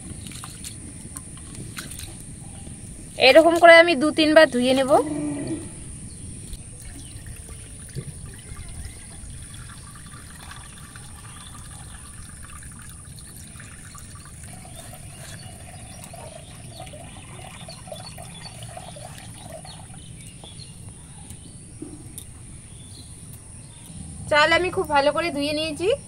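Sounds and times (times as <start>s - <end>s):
water trickling into pot: 6.6s - 20.5s.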